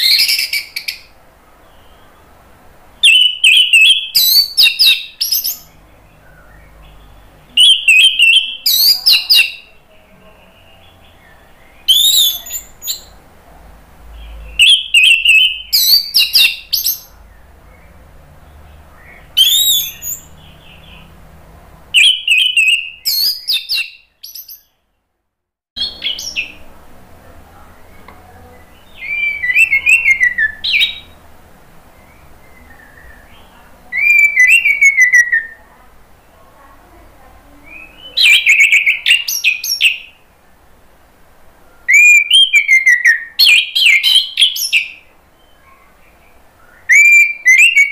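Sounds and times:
thrush singing whistles: 0.0 - 1.2, 3.0 - 6.8, 7.6 - 9.7, 10.8 - 13.2, 14.3 - 17.1, 19.0 - 21.1, 22.0 - 24.7, 28.8 - 31.2, 32.0 - 35.6, 41.8 - 45.6, 46.6 - 47.9.

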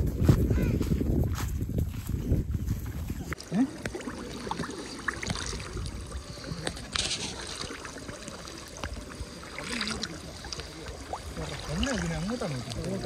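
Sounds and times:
water sloshing and splashing: 3.1 - 13.0.

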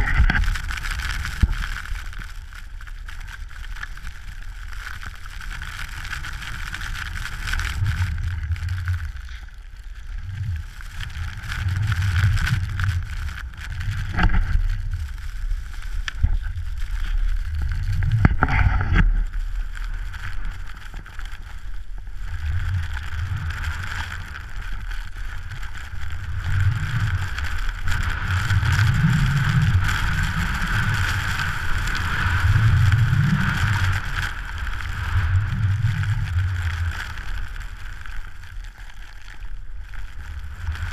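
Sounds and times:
wind buffeting microphone: 0.0 - 0.8.

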